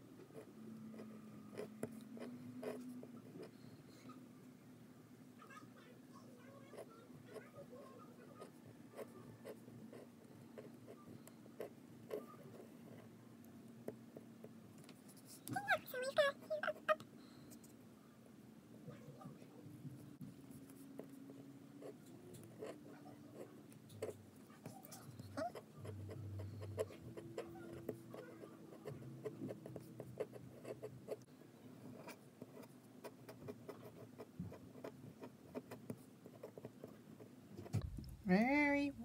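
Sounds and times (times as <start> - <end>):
pen nib scratching on paper: 20.5 - 31.3, 31.9 - 37.3.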